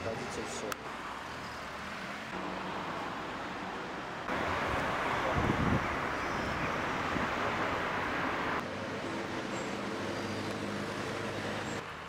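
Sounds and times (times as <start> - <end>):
steady engine hum: 0.0 - 12.0
vehicle passing with hiss: 0.1 - 12.0.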